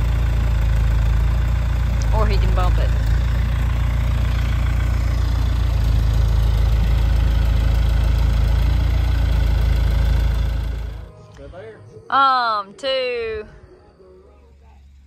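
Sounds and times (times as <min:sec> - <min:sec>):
telehandler engine droning: 0:00.0 - 0:11.5.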